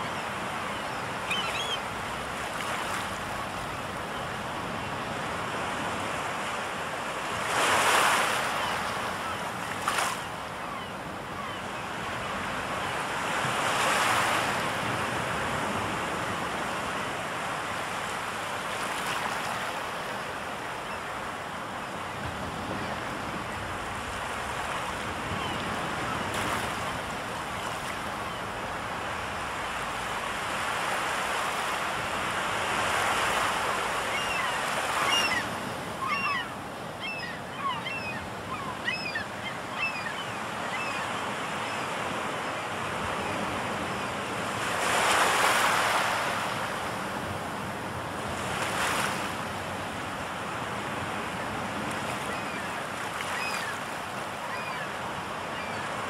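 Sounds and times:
seagulls calling: 0.0s - 2.0s, 32.8s - 42.4s, 52.2s - 56.0s
sea surf washing on shore: 0.0s - 56.0s.

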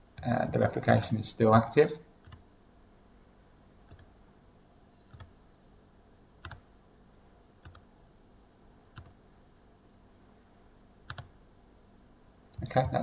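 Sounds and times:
computer clicks: 2.2s - 2.4s, 3.9s - 4.1s, 5.1s - 5.3s, 6.4s - 6.6s, 7.6s - 7.9s, 8.9s - 9.2s, 11.1s - 11.3s.

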